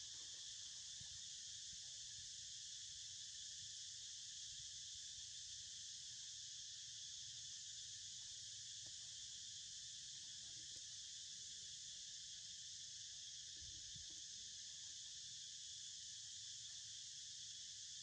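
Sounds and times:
high-pitched insect chorus: 0.0 - 18.0.

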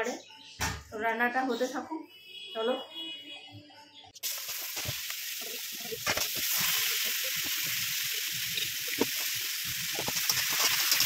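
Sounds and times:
vegetables sizzling in hot oil: 4.2 - 11.0.

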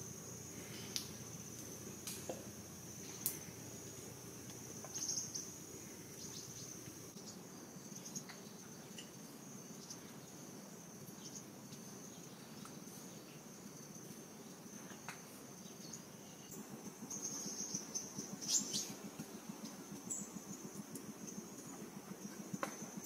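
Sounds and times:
high-pitched insect trill: 0.0 - 23.0
faint clicks: 0.9 - 2.4, 3.1 - 3.4.

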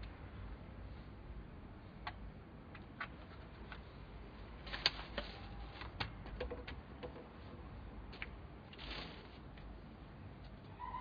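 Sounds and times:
small clicks and taps: 2.0 - 3.8.

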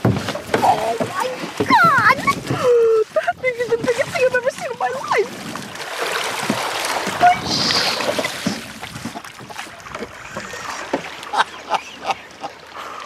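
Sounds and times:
water splashing: 0.0 - 13.0.

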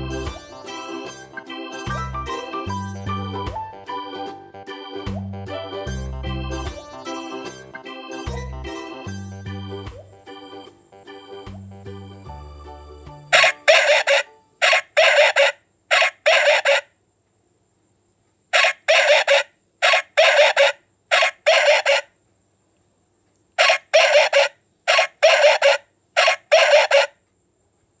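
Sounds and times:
tinny recorded dog barks: 13.4 - 16.8.

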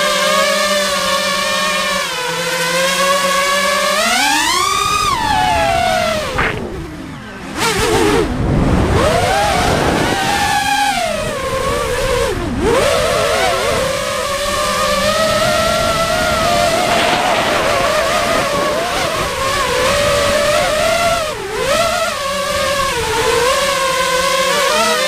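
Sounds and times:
drone motors whining: 0.4 - 25.0
rushing air noise: 5.0 - 7.1, 15.6 - 20.4.

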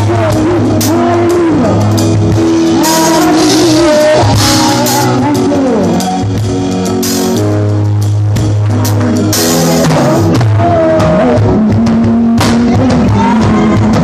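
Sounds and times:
person singing melody: 0.0 - 6.5, 8.7 - 14.0
bass line: 0.0 - 14.0
drum kit with cymbal crashes: 0.0 - 14.0.

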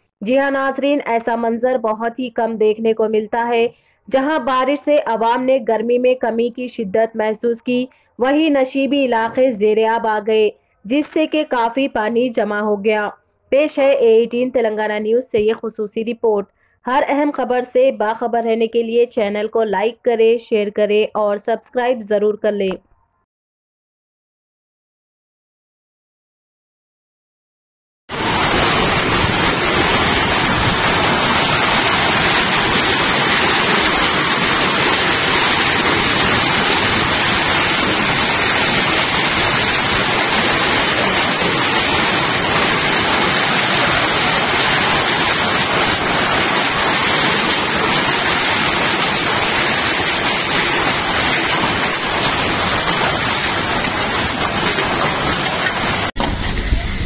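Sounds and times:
heavy rain and hail: 28.1 - 57.0.

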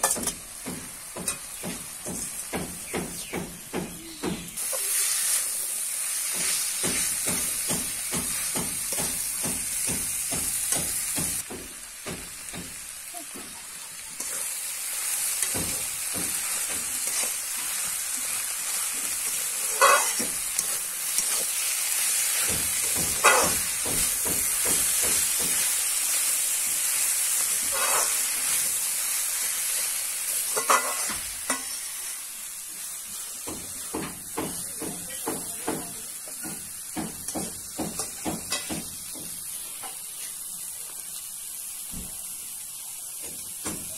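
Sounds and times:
food sizzling in a wok: 0.0 - 43.9
spatula scraping metal pan: 19.2 - 21.6, 22.8 - 23.7, 27.6 - 28.6, 30.5 - 31.9.

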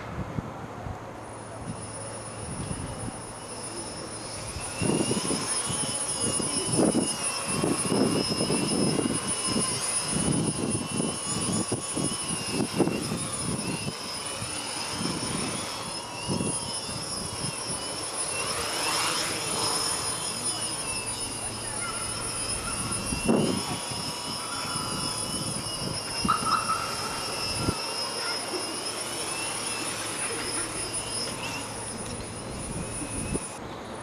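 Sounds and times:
quadcopter propellers whining: 0.0 - 34.0.

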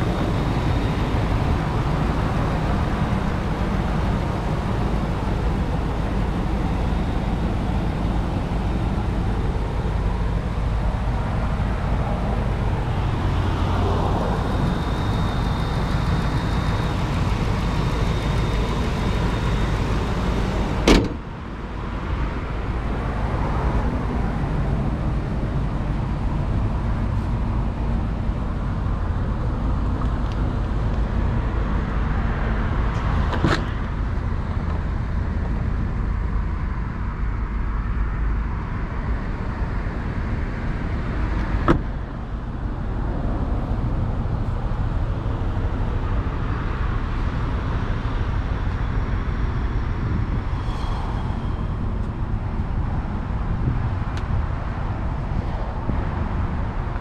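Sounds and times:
pickup engine idling: 0.0 - 21.7.

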